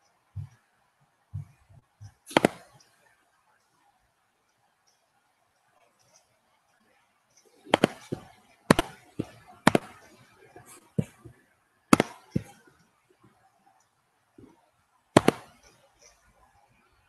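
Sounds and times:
digital pops and crackles: 7.4s - 11.3s, 11.9s - 12.6s, 15.2s - 16.2s.

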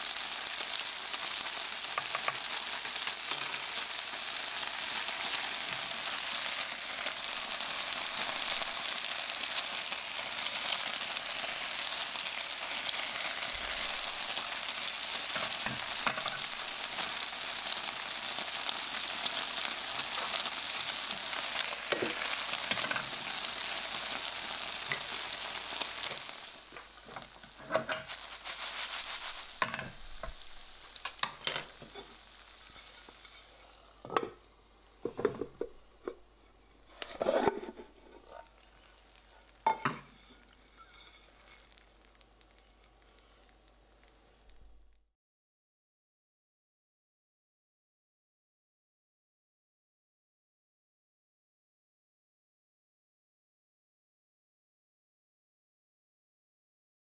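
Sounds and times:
food sizzling in a frying pan: 0.0s - 45.0s.

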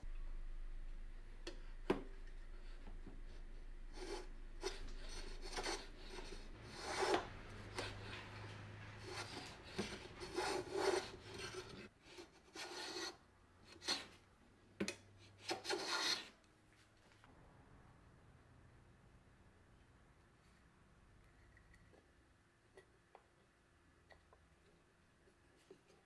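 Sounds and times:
hand plane scraping through wood: 4.0s - 13.2s, 15.4s - 16.3s.

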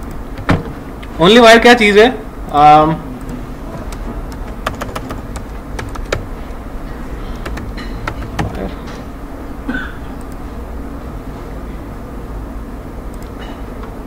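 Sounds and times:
keyboard keys clicking: 0.0s - 0.6s, 3.2s - 6.6s, 7.3s - 9.0s
steady low hum: 0.0s - 14.0s.

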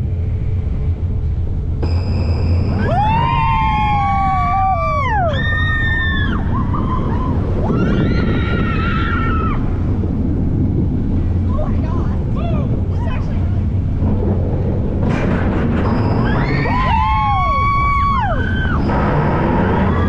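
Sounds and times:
wind and roller coaster rush: 0.0s - 20.0s
riders screaming: 2.8s - 9.9s, 16.2s - 20.0s.

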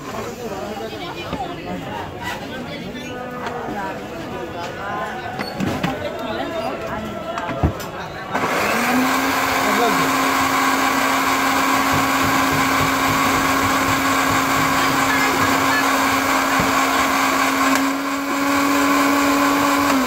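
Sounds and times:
blender motor humming: 8.4s - 20.0s.

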